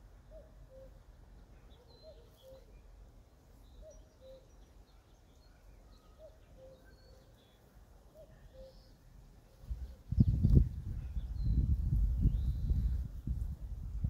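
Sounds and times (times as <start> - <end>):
high bird chirps: 3.7 - 4.8.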